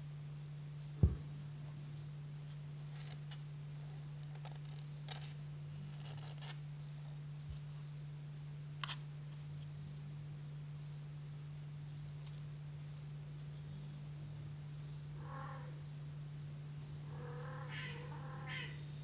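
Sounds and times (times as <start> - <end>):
steady low hum: 0.0 - 19.0
dull thump: 1.0 - 1.3.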